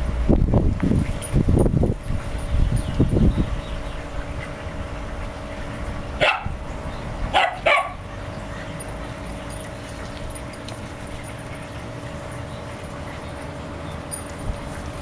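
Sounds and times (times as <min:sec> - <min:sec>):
dog barking: 0:06.2 - 0:06.6, 0:07.3 - 0:08.0.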